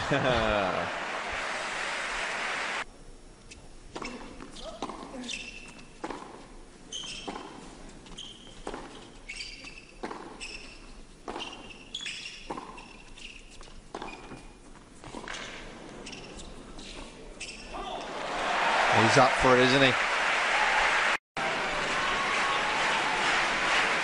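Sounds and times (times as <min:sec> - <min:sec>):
shoes squeaking on court: 0:03.5 - 0:17.8.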